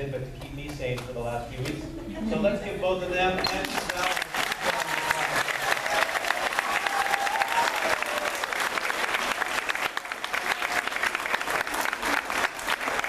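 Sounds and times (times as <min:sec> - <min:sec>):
audience applauding: 0:03.5 - 0:13.0.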